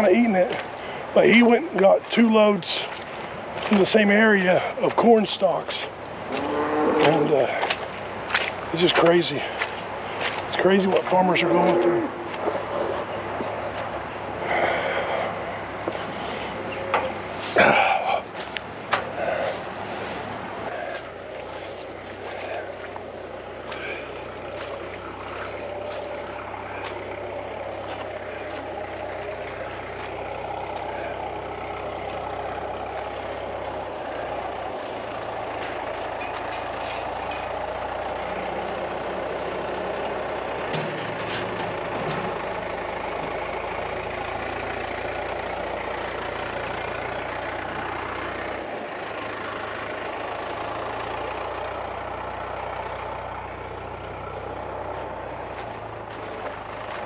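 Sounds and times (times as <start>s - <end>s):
tractor engine running: 0.0s - 57.0s
knocks and rattles: 40.3s - 43.4s.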